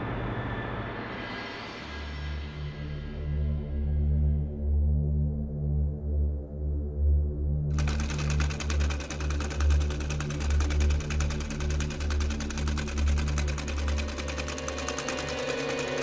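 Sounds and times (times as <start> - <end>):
treadle sewing machine clattering: 7.7 - 16.0.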